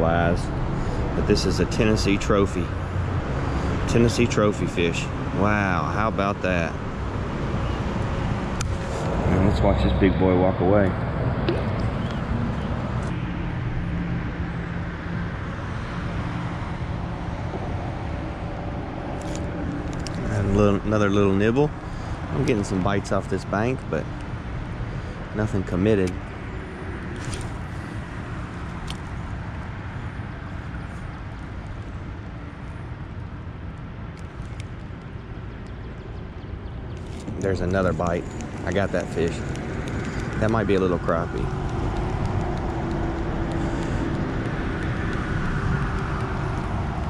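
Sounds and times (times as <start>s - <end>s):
distant highway traffic drone: 0.0s - 47.0s
wind buffeting microphone: 34.9s - 47.0s.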